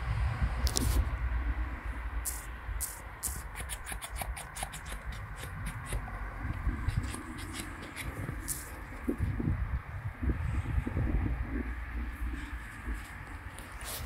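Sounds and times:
low steady rumble: 5.2s - 13.8s
crunching in snow: 13.0s - 14.0s.

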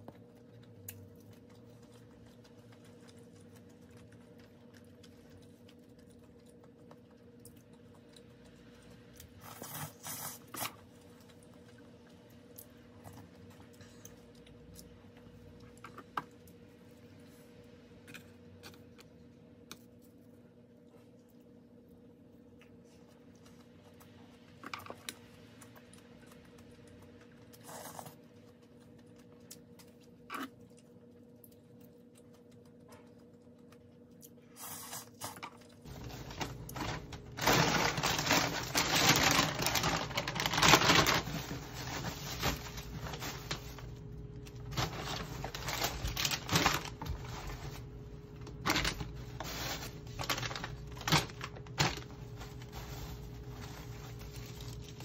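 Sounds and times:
plastic packaging rustling: 35.3s - 55.0s.

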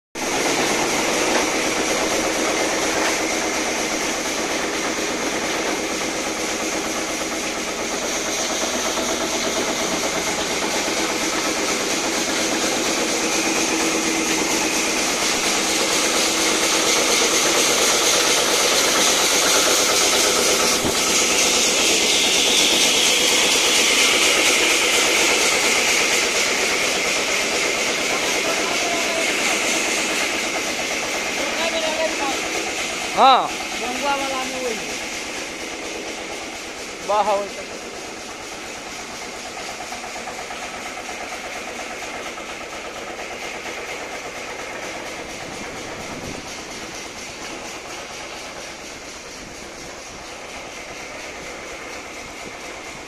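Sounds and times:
high hiss: 0.2s - 41.8s
sawmill machinery hum: 0.2s - 53.0s.

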